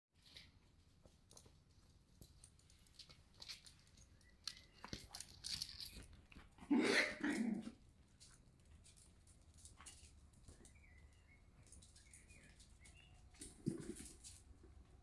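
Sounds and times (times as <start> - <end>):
puppy barking: 6.6 - 7.8.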